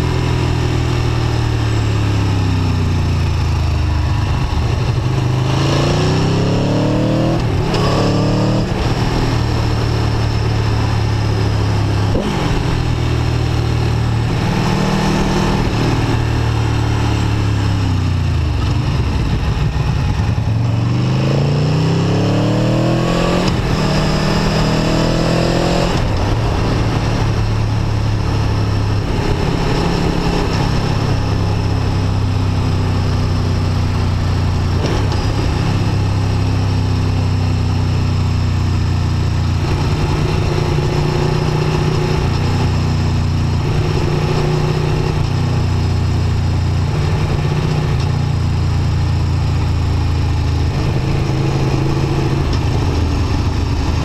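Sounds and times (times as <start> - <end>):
motorcycle engine under throttle: 0.0 - 54.0
wind rush: 22.7 - 31.8.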